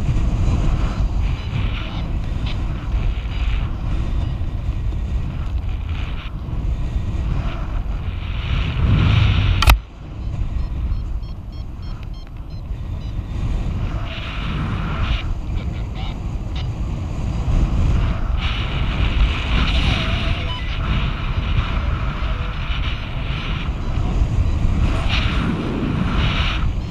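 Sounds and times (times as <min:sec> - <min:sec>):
wind buffeting microphone: 0:00.0 - 0:26.9
sharp click: 0:09.6 - 0:09.8
faint short high beeps: 0:10.2 - 0:13.2.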